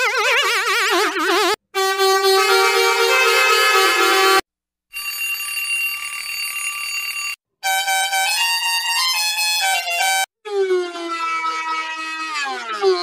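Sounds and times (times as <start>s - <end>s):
altered ship's horn: 1.8s - 4.4s.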